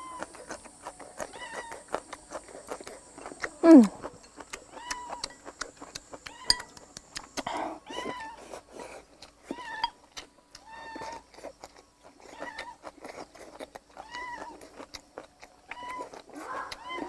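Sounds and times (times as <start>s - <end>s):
chopsticks clicking against bowl: 4.2s - 7.4s
cat meowing: 15.8s - 17.0s.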